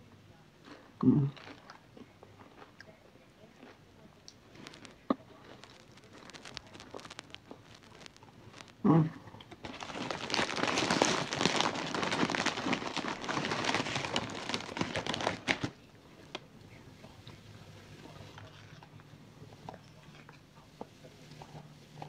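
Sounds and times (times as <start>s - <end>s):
plastic packaging crinkling: 4.3s - 16.5s.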